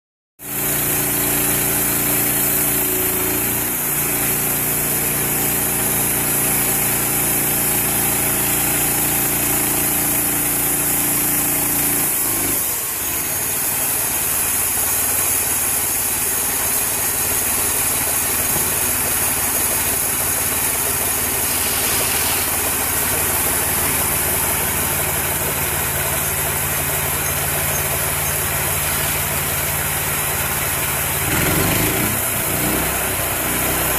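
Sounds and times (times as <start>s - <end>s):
sawmill engine running: 0.4s - 33.9s
high hiss: 18.4s - 29.4s.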